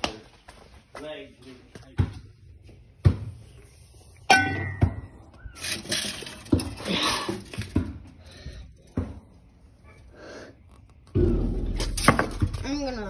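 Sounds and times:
tools scraping and clattering on concrete: 0:03.4 - 0:10.0, 0:11.6 - 0:13.0.

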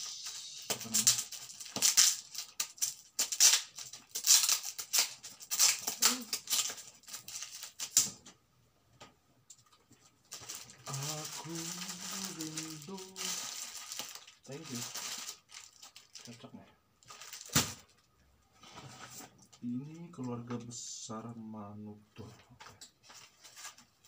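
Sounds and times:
plastic wrapping crinkling: 0:00.0 - 0:08.2, 0:09.7 - 0:18.2, 0:23.0 - 0:24.0.

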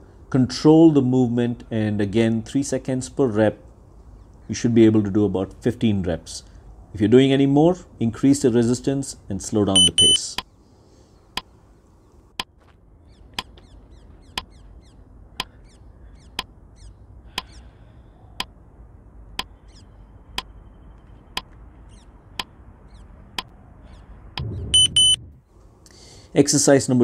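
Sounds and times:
short high beeps: 0:09.8 - 0:10.2, 0:24.7 - 0:25.2.

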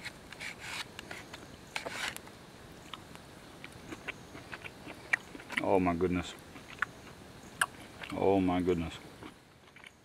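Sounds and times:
person chewing: 0:02.8 - 0:08.2, 0:09.1 - 0:10.0.

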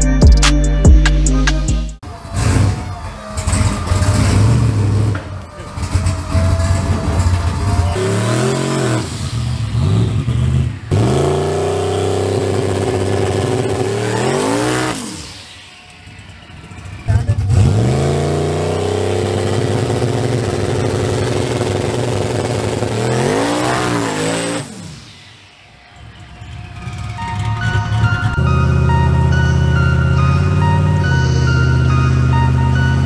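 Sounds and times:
truck engine revving: 0:00.0 - 0:33.0
tyres spinning: 0:02.1 - 0:18.8.

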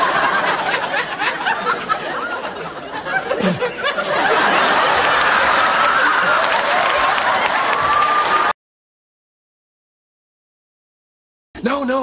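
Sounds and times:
audience laughing: 0:00.0 - 0:08.5.

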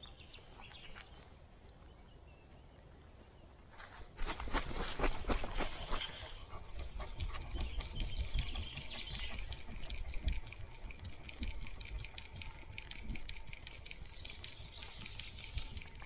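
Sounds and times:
paws padding on dirt: 0:00.0 - 0:16.0
faint high ticking: 0:08.1 - 0:16.0.

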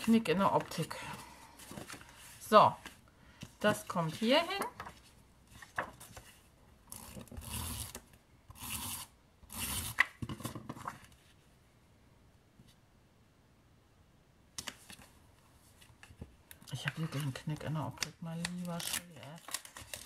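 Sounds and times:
paper sheets rustling and sliding: 0:00.0 - 0:03.0, 0:03.7 - 0:06.4.

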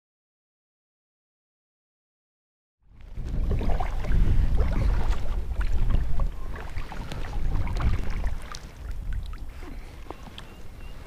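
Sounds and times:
wind rumbling on microphone: 0:02.9 - 0:11.0
paddle splashes and drips: 0:03.0 - 0:11.0.

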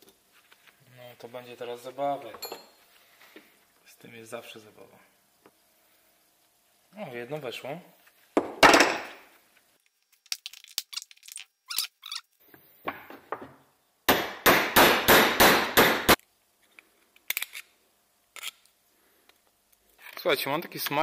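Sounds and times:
tools clinking on workbench: 0:02.3 - 0:02.8.

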